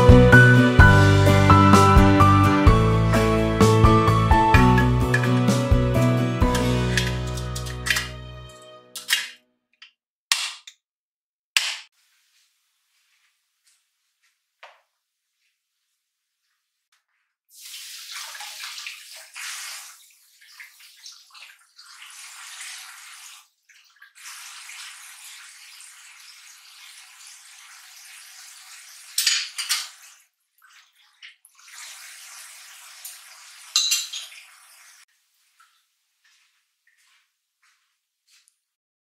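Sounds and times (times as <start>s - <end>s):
tap water splashing: 17.6s - 35.0s
dishware clattering knocks: 33.8s - 34.3s.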